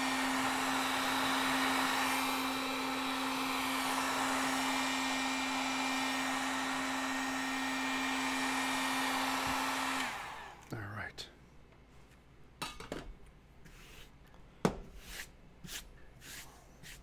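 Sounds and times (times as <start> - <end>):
heat gun blowing: 0.0 - 10.7.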